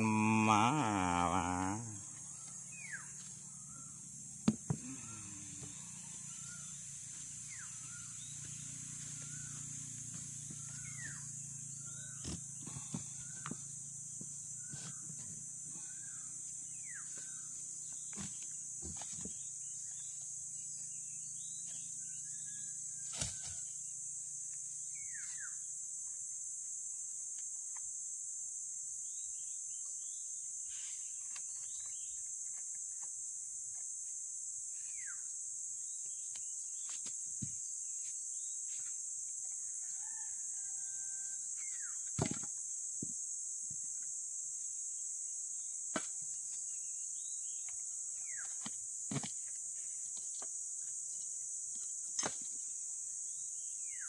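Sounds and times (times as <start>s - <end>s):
high-pitched insect drone: 0.0s - 33.0s.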